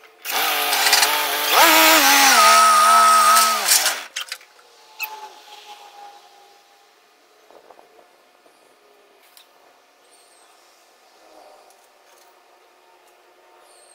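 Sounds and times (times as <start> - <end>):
tractor engine revving: 0.2 - 4.2.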